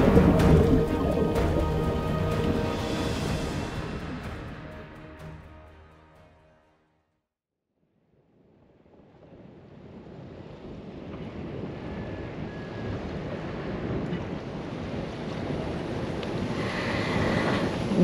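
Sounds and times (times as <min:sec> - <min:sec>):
choppy water lapping: 0:00.0 - 0:04.3
wind buffeting microphone: 0:09.4 - 0:18.0.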